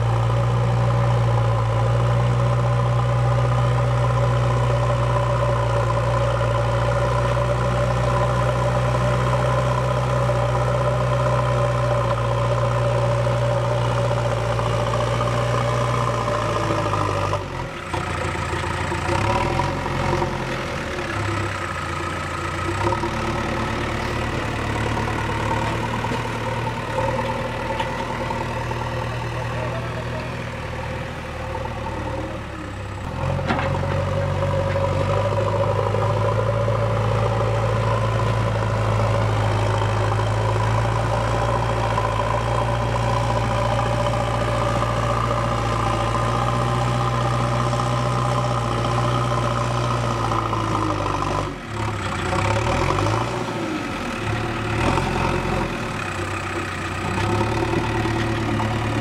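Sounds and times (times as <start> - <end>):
backhoe diesel engine revving: 0.0 - 59.0.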